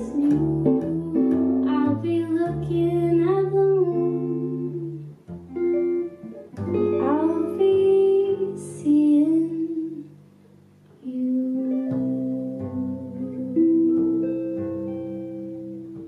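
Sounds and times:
woman singing: 0.0 - 5.2, 6.9 - 10.2, 11.0 - 14.4
electric guitar chords: 0.0 - 10.4, 11.3 - 16.0
plucked double bass: 0.0 - 16.0.

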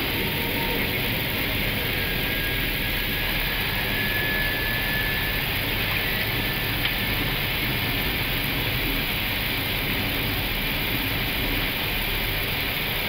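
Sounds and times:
faint high whistle: 0.0 - 7.6
jet engine and airflow rush: 0.0 - 13.0.

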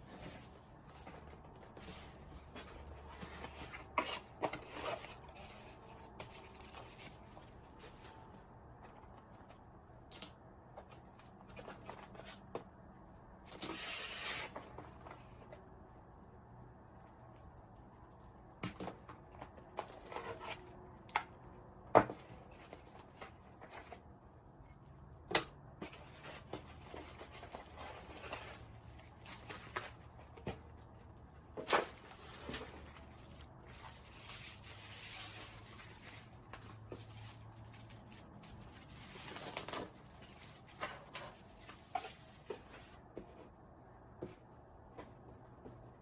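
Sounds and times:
packaging rustling: 25.9 - 43.0.

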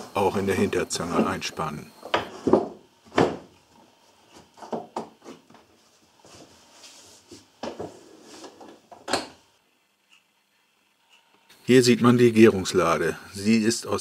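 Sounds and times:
wooden knocks on workbench: 2.1 - 3.5.

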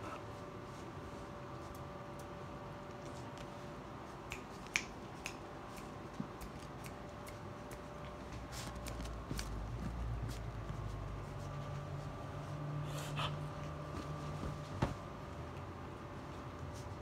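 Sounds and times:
puppies scuffling on a blanket: 0.0 - 4.2, 8.0 - 17.0
faint steady hum: 0.0 - 17.0
low rumble of movement: 8.0 - 15.6.

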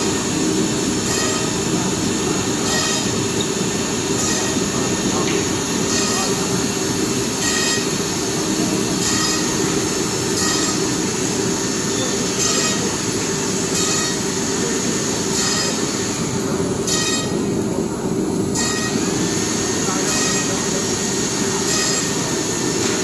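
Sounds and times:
high squealing spindle whine: 0.0 - 17.4
router machine drone: 0.0 - 23.0.

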